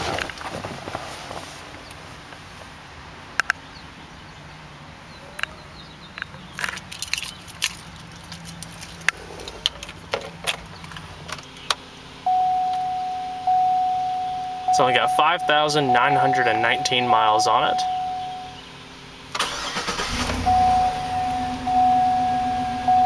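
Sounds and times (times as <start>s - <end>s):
car keys jangling: 6.2s - 11.6s
dashboard warning chime: 12.3s - 18.6s, 19.6s - 23.0s.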